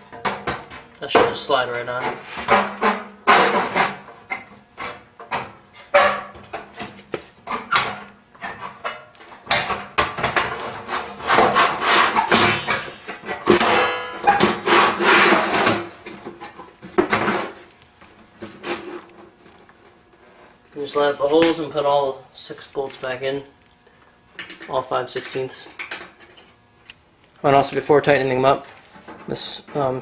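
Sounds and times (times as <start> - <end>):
sheet metal scraping: 10.6 - 15.9
metal ringing: 12.4 - 14.8.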